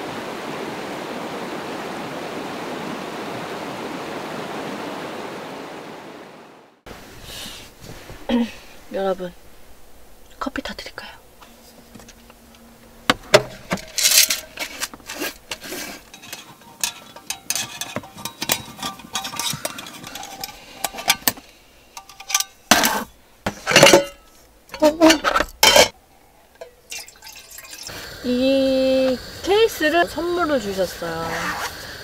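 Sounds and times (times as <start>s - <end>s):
metal cookware clinking: 13.4s - 26.0s, 26.6s - 27.9s.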